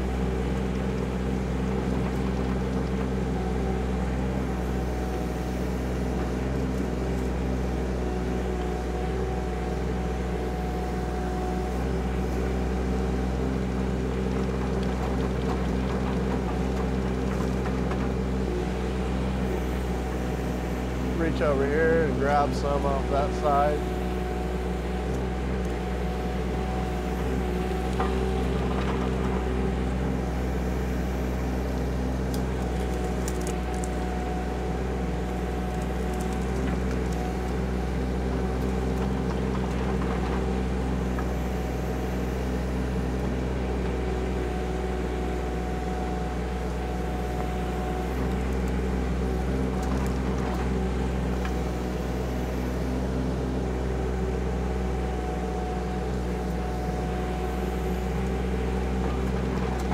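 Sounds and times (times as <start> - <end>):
excavator diesel engine running: 0.0 - 59.9.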